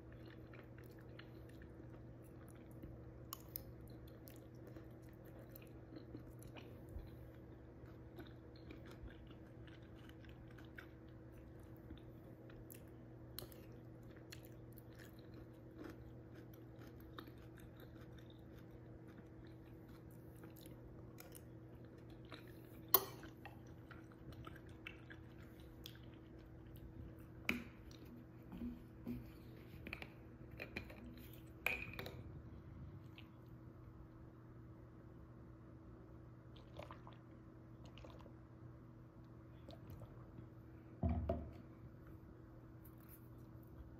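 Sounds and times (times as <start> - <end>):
close chewing: 0.0 - 29.6.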